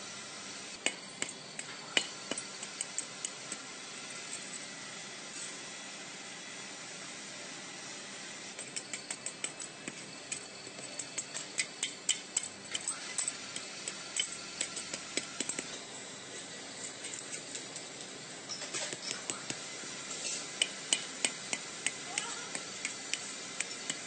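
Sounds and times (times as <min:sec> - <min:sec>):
hand tool tapping metal castings: 0:00.8 - 0:03.6, 0:08.6 - 0:15.8, 0:18.5 - 0:24.0.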